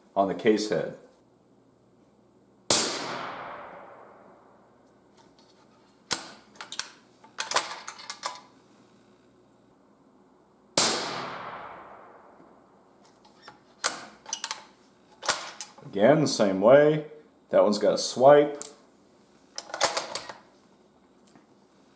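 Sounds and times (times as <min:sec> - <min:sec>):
rifle gunshot echoing: 0:02.7 - 0:04.6, 0:10.8 - 0:12.4.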